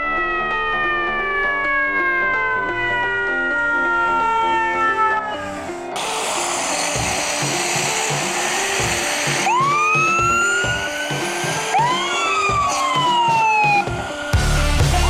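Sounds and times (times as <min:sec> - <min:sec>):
background music: 0:00.0 - 0:15.0
fire truck siren wailing: 0:00.0 - 0:15.0
rushing noise: 0:02.6 - 0:14.4.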